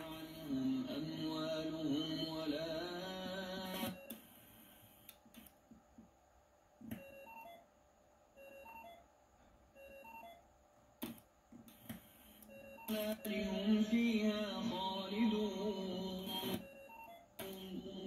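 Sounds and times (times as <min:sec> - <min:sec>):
radio music: 0:00.0 - 0:04.7, 0:12.5 - 0:18.0.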